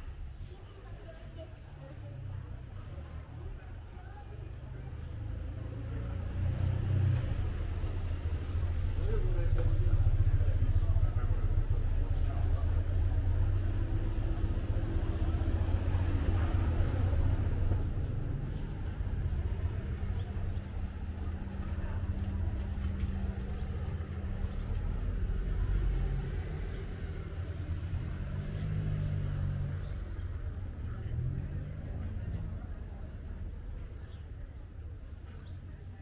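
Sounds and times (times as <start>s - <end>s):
low street rumble: 0.0s - 36.0s
car driving past: 5.0s - 33.6s.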